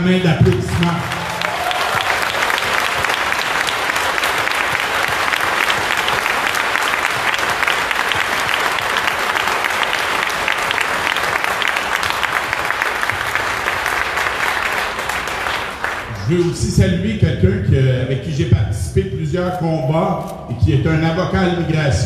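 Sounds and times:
crowd applauding: 0.0 - 16.6.

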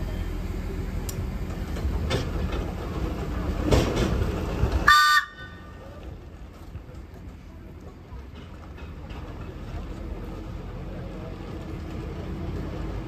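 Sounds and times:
railcar horn toot: 4.8 - 5.8.

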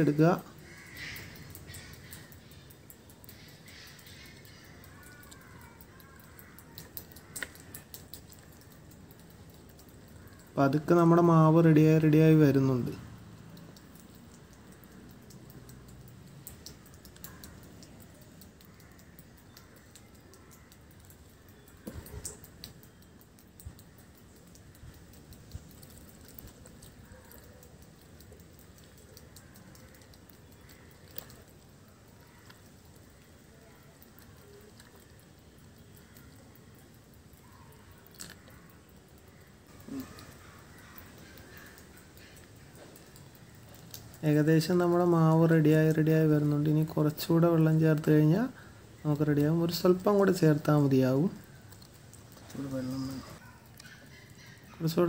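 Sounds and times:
bird calling: 0.0 - 8.1, 37.4 - 43.8, 52.4 - 55.0
sharp clicks: 0.4 - 11.3, 13.2 - 48.4.

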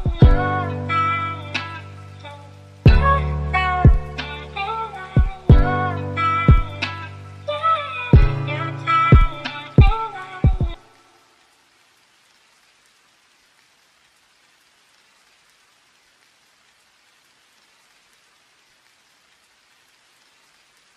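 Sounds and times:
rap beat: 0.0 - 0.6, 2.9 - 4.6, 5.2 - 7.1, 8.2 - 10.8
faint rain patter: 0.0 - 20.9.

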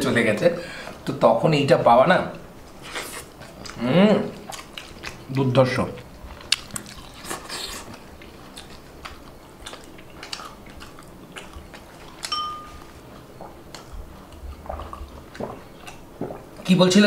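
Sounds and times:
soft chewing: 2.3 - 16.7
drinking glass clinking: 12.3 - 12.9.

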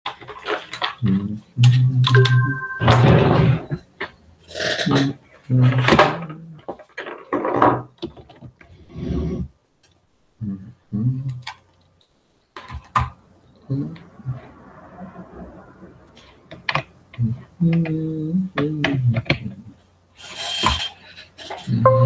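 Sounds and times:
low indistinct voice: 10.4 - 11.4, 13.6 - 14.6, 17.2 - 19.7.

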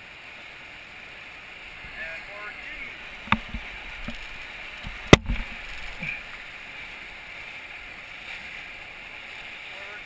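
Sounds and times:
rapids rushing: 0.0 - 10.0
knocks on raft: 3.2 - 4.2, 4.8 - 5.9.

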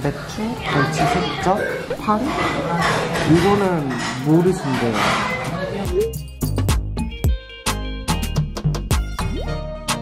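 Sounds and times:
music with sharp percussion beat: 5.8 - 10.0.

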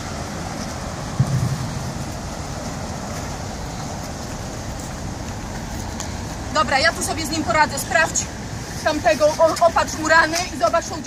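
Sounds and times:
city street noise: 0.0 - 11.0
short low thump: 1.2 - 2.3.

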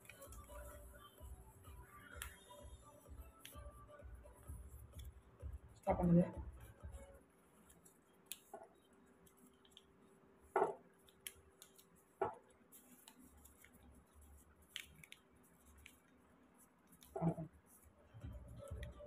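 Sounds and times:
paper folding and crackling: 7.6 - 18.0.

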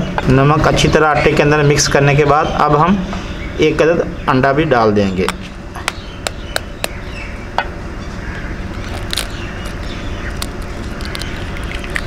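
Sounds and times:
low background noise: 0.0 - 12.0
egg shell clicks: 8.8 - 12.0.

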